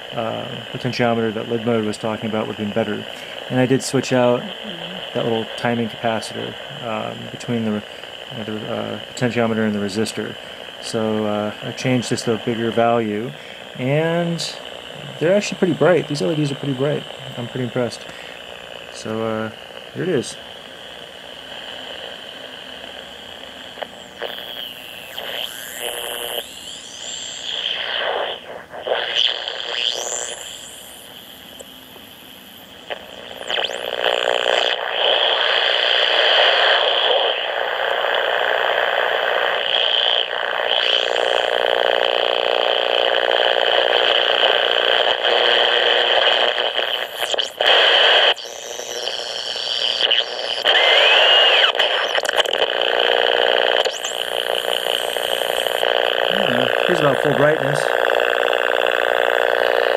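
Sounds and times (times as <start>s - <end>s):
radio buzzing hiss: 0.0s - 59.9s
radio interference whistling tones: 23.8s - 31.4s, 32.4s - 38.6s, 39.2s - 58.1s.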